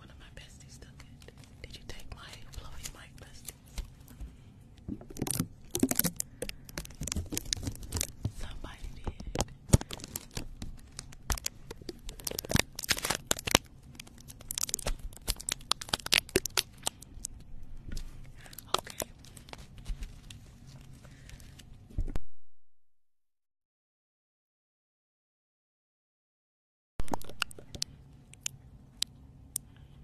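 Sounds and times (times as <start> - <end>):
plastic packaging crinkling: 4.9 - 21.8
plastic tearing: 5.0 - 8.4, 9.3 - 21.7.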